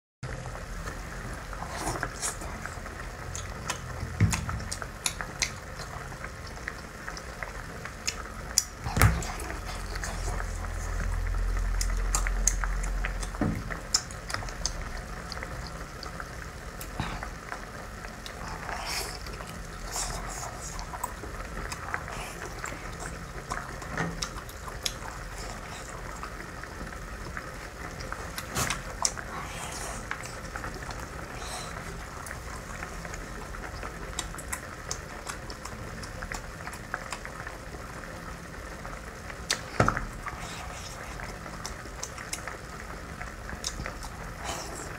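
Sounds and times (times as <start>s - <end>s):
wet chewing and slurping: 1.6s - 7.4s, 8.0s - 37.4s
low rumble: 8.8s - 23.4s.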